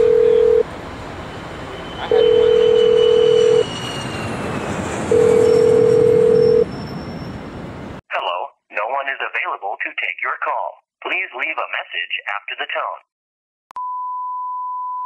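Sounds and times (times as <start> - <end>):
telephone ringback tone: 0.0 - 0.6, 2.1 - 3.6, 5.1 - 6.7
street noise: 0.0 - 8.0.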